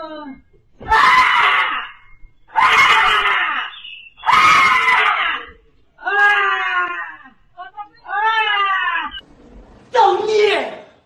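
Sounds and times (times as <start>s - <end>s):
high-pitched screaming: 0.8s - 7.3s.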